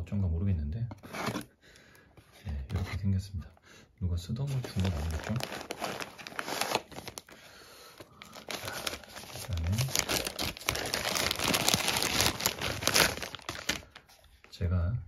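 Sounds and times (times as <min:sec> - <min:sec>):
wrapping crinkling and rustling: 0:04.4 - 0:14.6.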